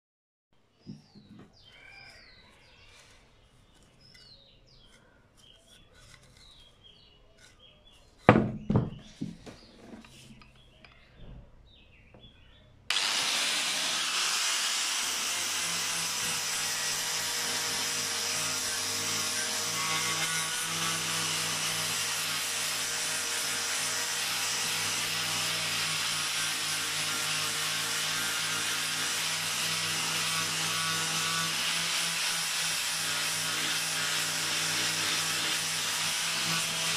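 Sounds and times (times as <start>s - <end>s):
angle grinder sanding wood: 12.9s - 36.9s.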